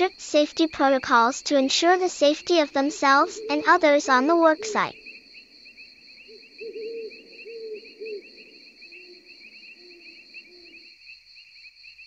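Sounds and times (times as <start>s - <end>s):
crickets chirring: 0.0s - 12.0s
bird hooting: 2.4s - 5.2s, 6.2s - 10.8s.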